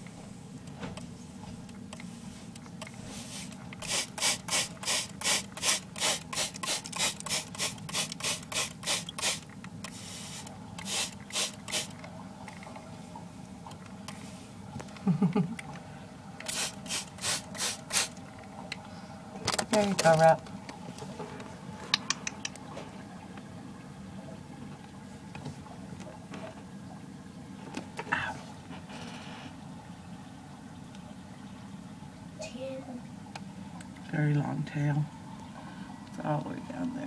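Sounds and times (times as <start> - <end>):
spray bottle spraying: 3.1 - 12.0, 16.5 - 18.2.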